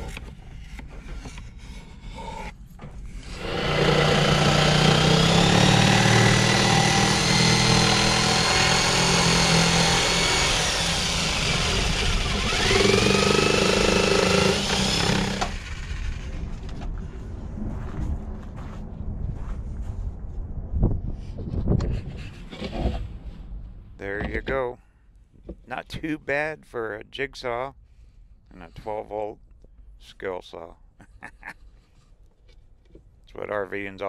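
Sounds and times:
electric jigsaw cutting wood: 0:03.2 - 0:16.4.

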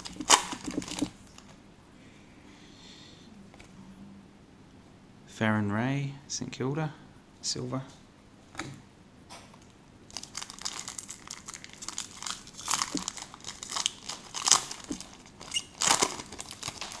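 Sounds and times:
foil wrapper crinkling: 0:00.0 - 0:01.6, 0:10.1 - 0:17.0.

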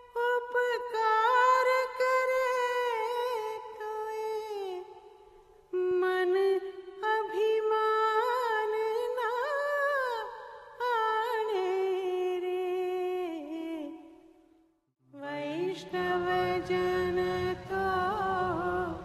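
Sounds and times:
solo voice singing held notes: 0:15.2 - 0:19.0.

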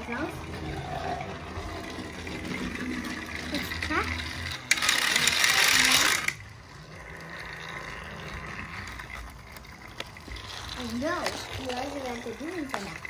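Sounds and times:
toy train motor running: 0:00.0 - 0:13.0.

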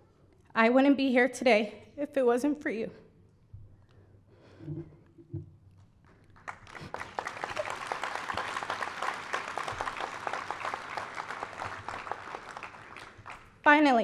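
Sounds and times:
audience applauding: 0:06.1 - 0:13.6.

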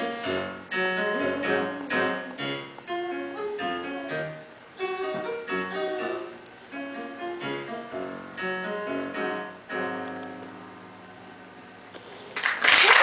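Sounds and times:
digital piano chords: 0:00.0 - 0:12.0
audience applause: 0:12.3 - 0:13.0.

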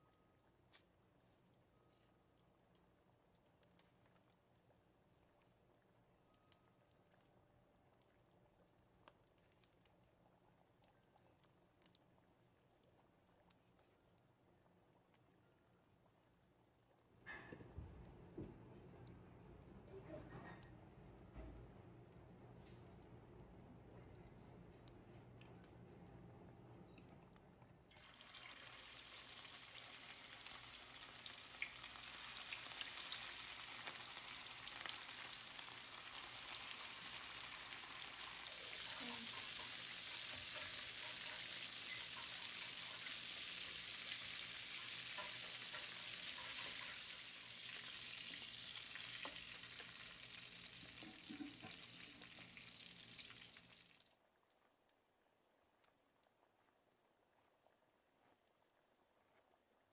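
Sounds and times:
patties sizzling in hot oil: 0:27.9 - 0:54.2.

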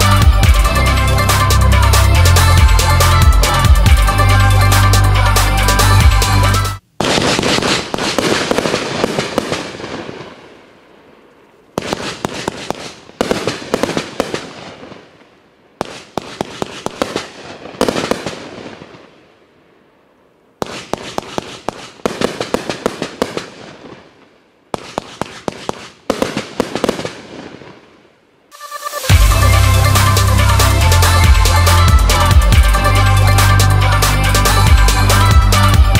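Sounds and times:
firework crackling pops: 0:07.0 - 0:19.4, 0:20.6 - 0:30.2.

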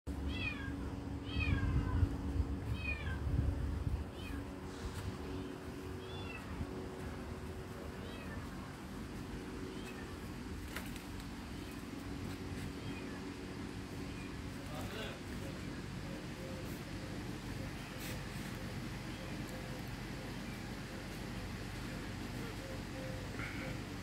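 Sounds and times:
electrical hum: 0:00.1 - 0:24.0
small animal calling: 0:04.1 - 0:06.6, 0:11.5 - 0:15.2.

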